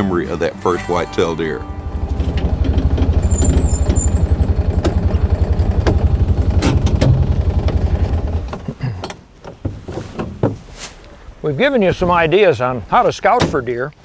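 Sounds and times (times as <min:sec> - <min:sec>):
vehicle engine idling: 0:01.0 - 0:08.7.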